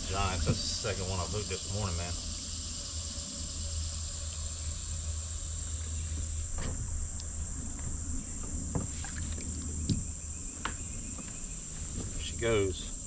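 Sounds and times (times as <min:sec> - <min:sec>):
insects chorus: 0:00.0 - 0:13.0
water splashes and drips: 0:08.7 - 0:10.0.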